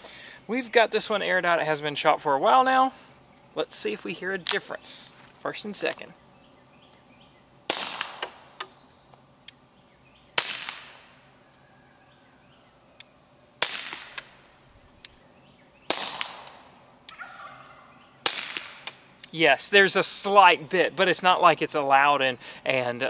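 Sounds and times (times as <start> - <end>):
suppressed pistol shots: 7.7 - 8.4, 10.4 - 11.1, 13.6 - 14.4, 15.9 - 16.6, 18.2 - 19.0.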